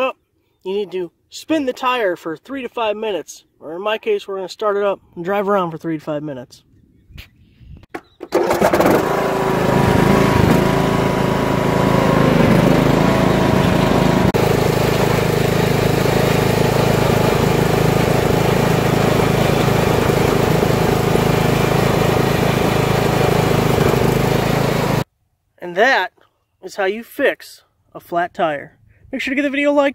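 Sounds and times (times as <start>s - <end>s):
lawn tractor engine running: 8.3s - 25.0s.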